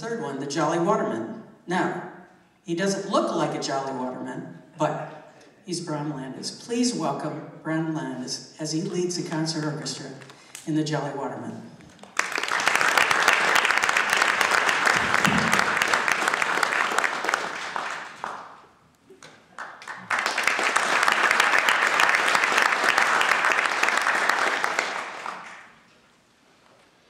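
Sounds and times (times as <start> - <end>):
audience applauding: 12.0 - 25.8.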